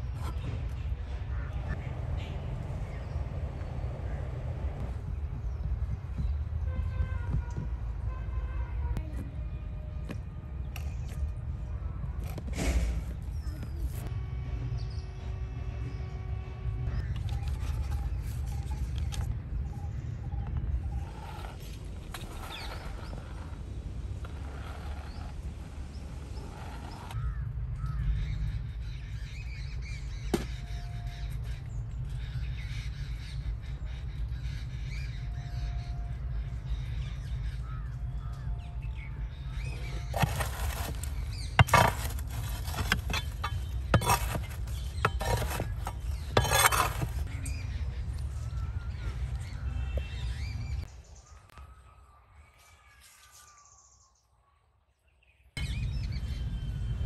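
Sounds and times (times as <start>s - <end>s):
wind rumble on microphone: 0.0s - 14.9s
metal poker scraping embers: 40.1s - 47.3s.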